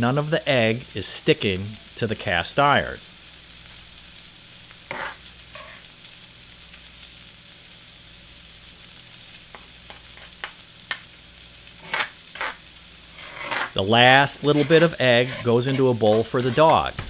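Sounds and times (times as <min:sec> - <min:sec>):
food sizzling in fat: 0:00.0 - 0:17.0
spoon scraping and tapping skillet: 0:04.9 - 0:05.8, 0:11.8 - 0:12.6, 0:13.2 - 0:13.8, 0:14.4 - 0:17.0.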